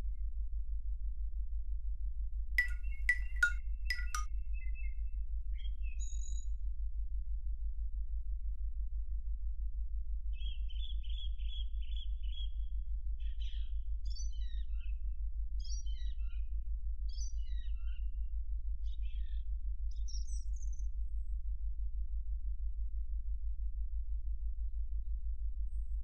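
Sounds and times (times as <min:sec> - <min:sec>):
songbird singing: 0:02.6 - 0:04.3.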